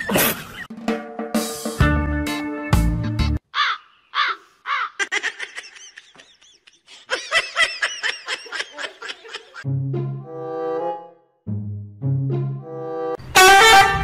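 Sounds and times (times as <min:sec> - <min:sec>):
background music: 0:00.0 - 0:03.4, 0:09.6 - 0:14.0.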